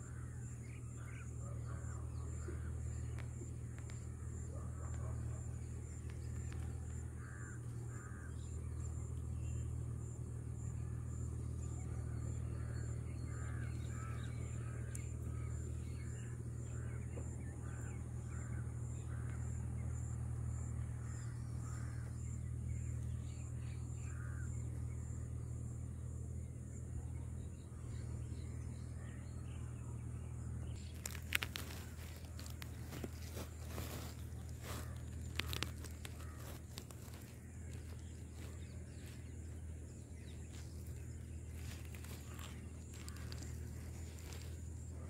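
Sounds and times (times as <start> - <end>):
constant low rumble: 0.0 - 45.0
high pulsing insect call: 0.0 - 45.0
birds giving short calls: 30.7 - 45.0.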